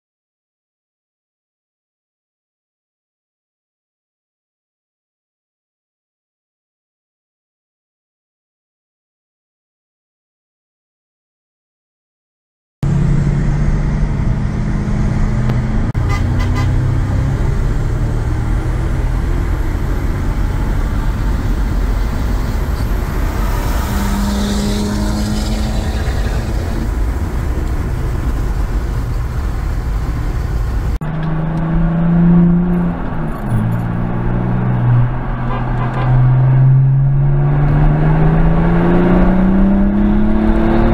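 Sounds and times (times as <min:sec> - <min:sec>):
diesel engine accelerating: 0:12.8 - 0:40.9
engine at full throttle: 0:12.8 - 0:40.9
road and wind noise: 0:12.8 - 0:40.9.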